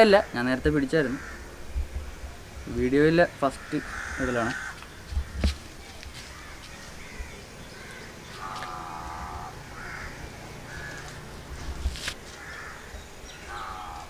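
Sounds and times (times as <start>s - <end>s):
crow cawing: 1.0s - 1.5s, 3.4s - 5.5s, 6.2s - 11.2s, 12.3s - 14.0s.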